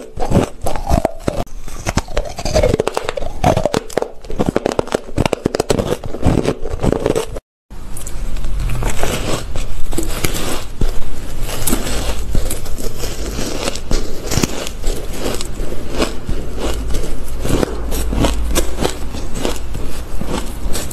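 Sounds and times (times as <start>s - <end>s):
crushed ice crunching: 8.7s - 20.9s.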